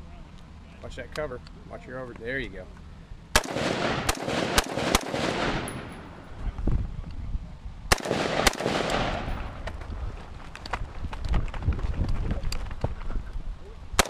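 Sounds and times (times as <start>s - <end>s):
rifle shots with echo: 3.3s - 6.4s, 7.9s - 9.6s.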